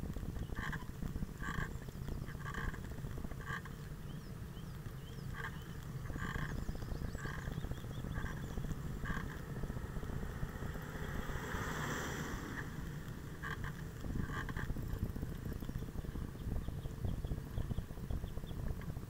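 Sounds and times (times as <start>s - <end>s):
wind and road noise: 0.0s - 19.0s
faint bird chirps: 3.4s - 9.5s, 15.5s - 18.8s.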